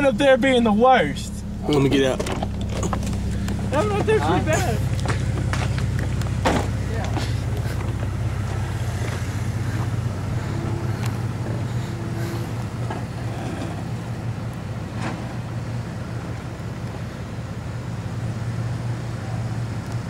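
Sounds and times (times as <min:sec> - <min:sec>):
truck engine running slowly: 0:00.0 - 0:20.0.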